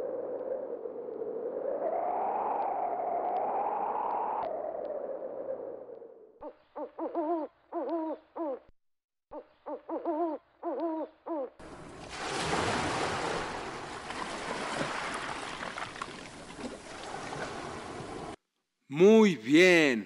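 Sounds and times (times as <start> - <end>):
owl hooting: 0.0 - 8.7, 9.3 - 11.6
ocean waves surf: 11.6 - 18.4.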